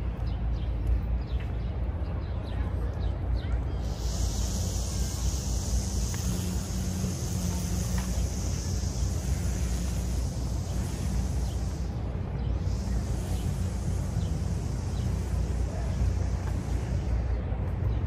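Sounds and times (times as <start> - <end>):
high hiss: 3.8 - 18.0.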